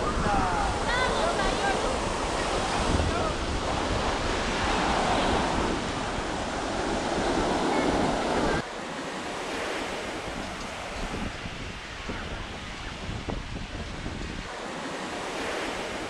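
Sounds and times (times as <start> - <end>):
wind buffeting microphone: 0.0 - 8.7, 9.4 - 16.0
ocean surf washing onto beach: 0.0 - 16.0.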